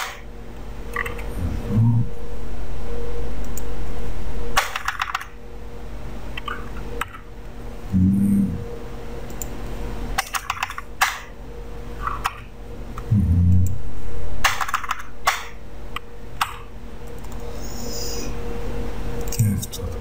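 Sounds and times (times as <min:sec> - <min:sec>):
short low hum: 0:01.1 - 0:04.6, 0:05.5 - 0:10.0, 0:12.7 - 0:14.5.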